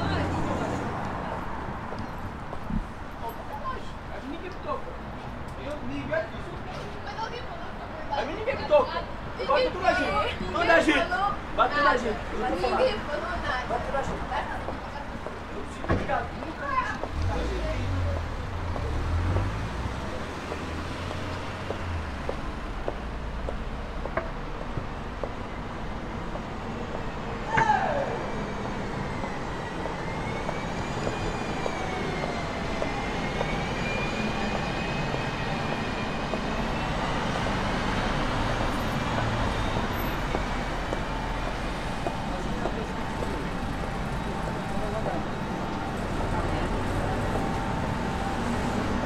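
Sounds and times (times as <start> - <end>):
street traffic noise: 0.0 - 49.0
vehicle engine rumble: 13.0 - 49.0
light footsteps: 18.2 - 25.4.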